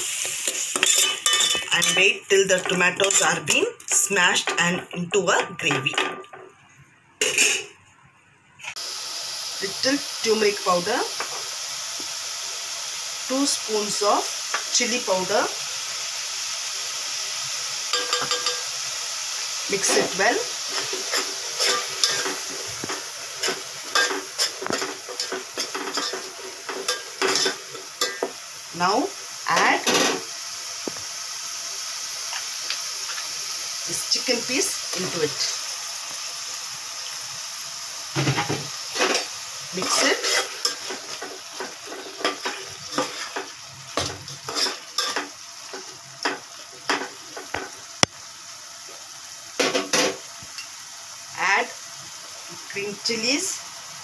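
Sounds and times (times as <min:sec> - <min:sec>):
metal spatula scraping pot: 0:00.0 - 0:05.0, 0:07.2 - 0:07.7, 0:19.8 - 0:28.3, 0:39.0 - 0:43.5, 0:44.4 - 0:45.2
sauce sizzling: 0:00.0 - 0:05.6, 0:08.6 - 0:54.0
metal spoon scraping metal pot: 0:00.4 - 0:03.3, 0:07.2 - 0:07.7, 0:39.8 - 0:41.0.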